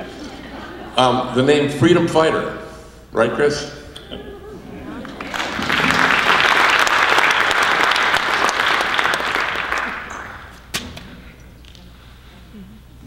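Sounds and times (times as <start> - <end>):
audience applauding: 5.0 - 10.6.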